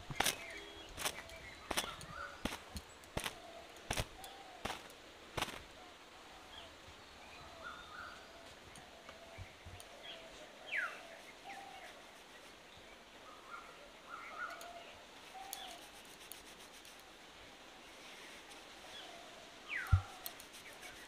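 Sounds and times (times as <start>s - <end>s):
faint birds calling: 0.0s - 21.0s
towel snapping against wet hair: 0.2s - 5.6s.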